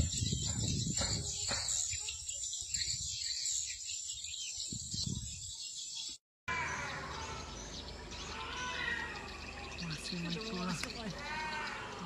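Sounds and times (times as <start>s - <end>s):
lower gliding bird calls: 6.5s - 12.0s.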